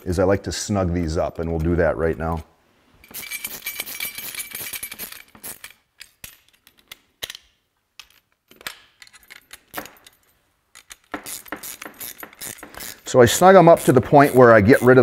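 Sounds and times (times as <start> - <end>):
wrench clinking on metal: 3.0 - 15.0.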